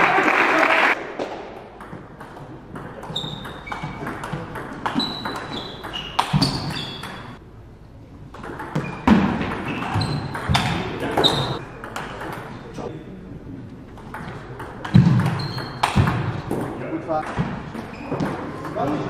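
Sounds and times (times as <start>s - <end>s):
shoes squeaking on floor: 3.0s - 7.4s, 8.7s - 11.8s, 14.9s - 16.0s, 17.6s - 19.0s.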